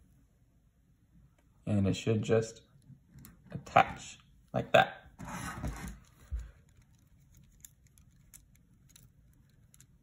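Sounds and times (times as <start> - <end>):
plastic beads clicking together: 6.7 - 10.0.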